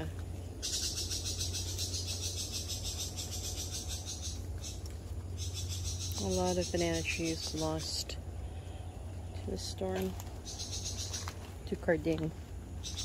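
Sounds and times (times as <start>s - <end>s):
insects trilling: 0.0s - 13.0s
steady low rumble: 0.0s - 13.0s.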